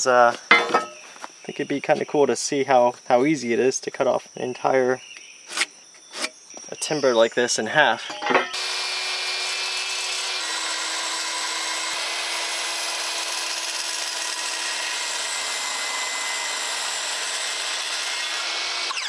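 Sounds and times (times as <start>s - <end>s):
circular saw cutting wood: 8.2s - 19.0s.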